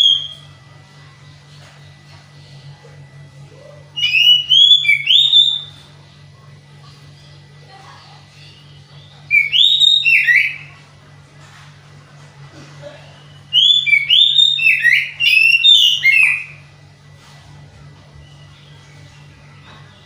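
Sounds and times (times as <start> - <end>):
bird singing whistled notes: 4.0 - 5.7, 9.0 - 10.7, 13.5 - 16.6.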